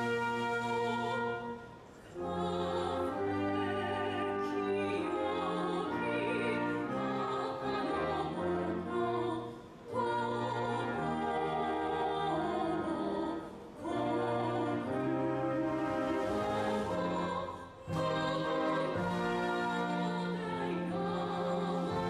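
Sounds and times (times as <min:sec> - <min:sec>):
operatic orchestral music: 0:00.0 - 0:22.0.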